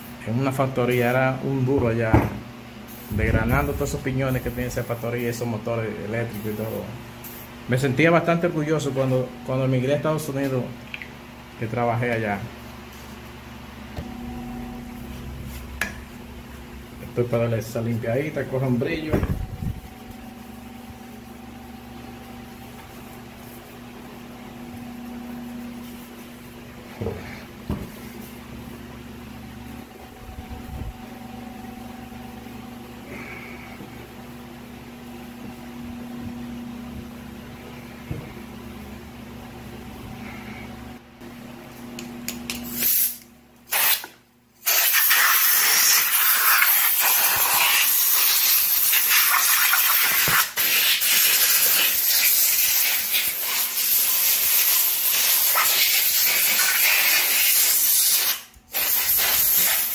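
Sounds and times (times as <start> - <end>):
pressurised spray hissing: 44.6 - 59.9.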